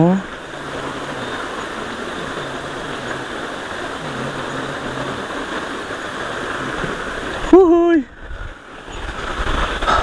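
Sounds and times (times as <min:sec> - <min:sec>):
flowing water rushing: 0:00.0 - 0:10.0.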